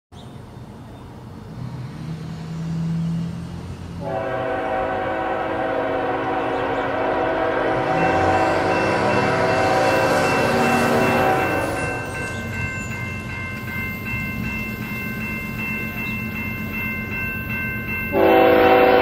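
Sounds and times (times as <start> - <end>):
locomotive air horn chord: 4.0 - 12.0, 18.1 - 19.0.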